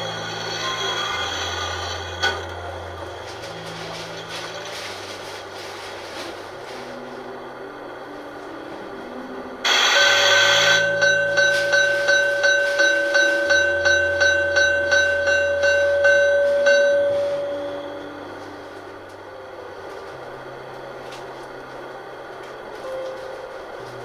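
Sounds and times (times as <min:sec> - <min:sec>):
locomotive bell ringing: 0:00.0 - 0:04.8, 0:09.6 - 0:18.6
steam hiss: 0:09.7 - 0:11.0.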